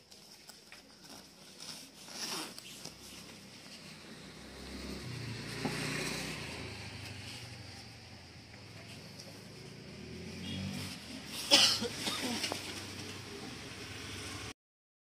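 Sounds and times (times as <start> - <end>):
jacket rustling: 0.0 - 4.1.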